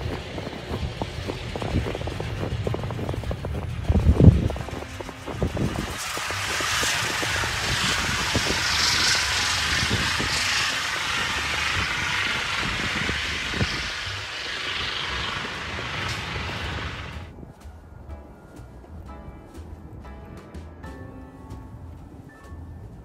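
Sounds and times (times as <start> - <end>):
vehicle traffic rushing: 0.0 - 17.3
low rumble: 0.0 - 20.8.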